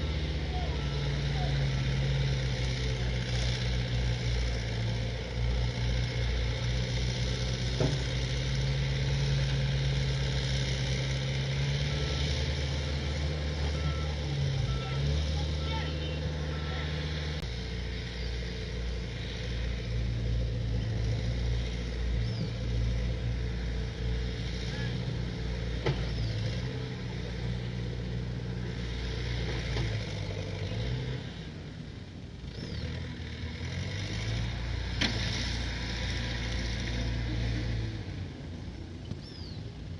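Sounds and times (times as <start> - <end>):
diesel engines running: 0.0 - 39.9
faint bird chirping: 22.0 - 23.2, 26.0 - 26.6, 39.0 - 39.8.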